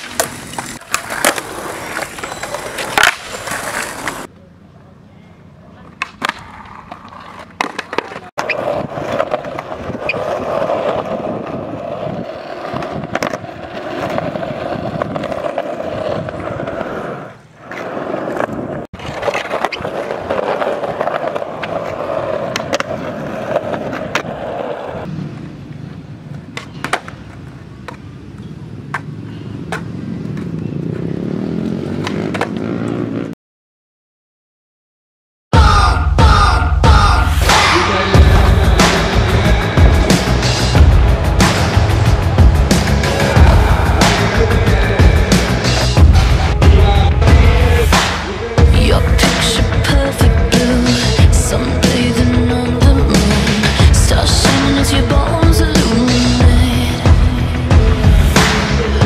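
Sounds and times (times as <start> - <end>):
skateboard clacking: 0.0 - 4.4, 5.7 - 30.6
skateboard wheels rolling on concrete: 0.0 - 33.3, 37.4 - 59.0.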